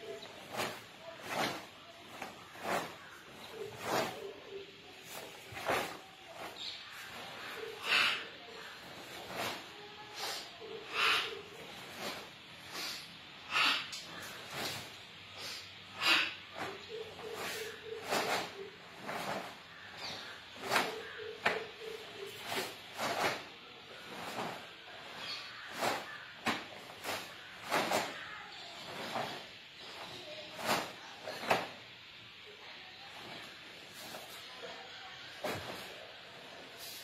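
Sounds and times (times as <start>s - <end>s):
sharp forceful exhalations: 7.3s - 28.2s.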